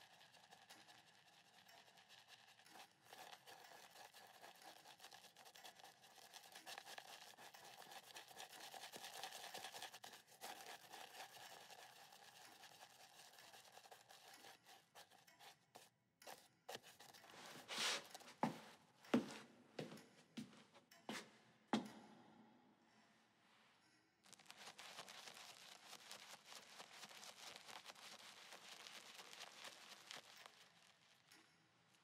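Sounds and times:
shaving brush bristly crackle: 0.0s - 18.5s, 24.2s - 32.0s
brush swish: 2.5s - 18.7s, 24.3s - 30.9s.

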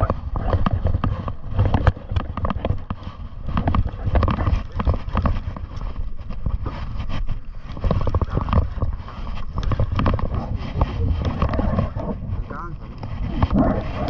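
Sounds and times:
sharp clicks and knocks: 0.0s - 6.6s, 7.7s - 12.0s
water around a boat: 0.0s - 14.0s
wind rumbling on microphone: 0.0s - 14.0s.

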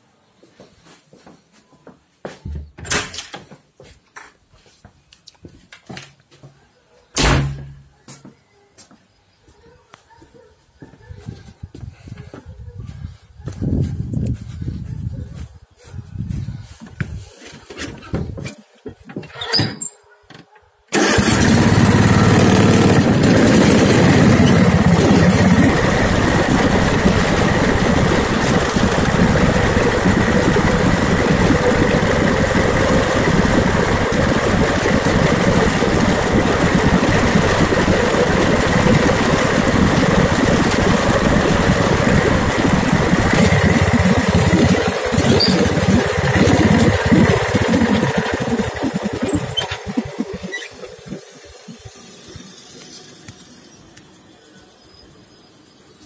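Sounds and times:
riding lawn mower engine running: 20.9s - 54.1s.

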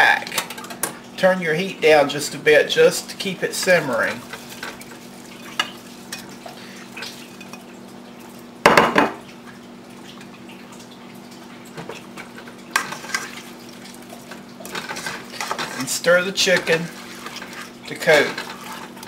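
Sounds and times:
spatula scraping pot: 12.8s - 19.0s.

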